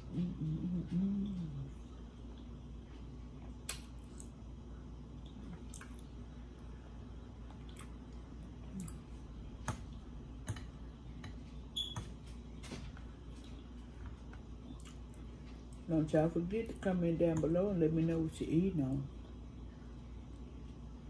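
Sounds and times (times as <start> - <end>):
soft chewing: 0.0 - 11.7, 12.3 - 15.9
low steady hum: 0.0 - 21.0.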